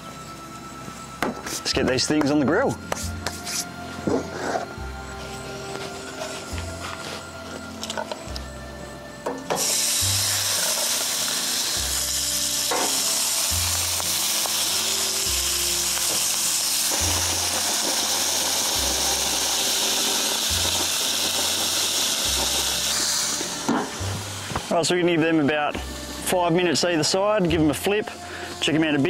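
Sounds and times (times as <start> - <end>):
background music with bass: 0.0 - 29.0
shellfish sizzling on hotplate: 9.4 - 29.0.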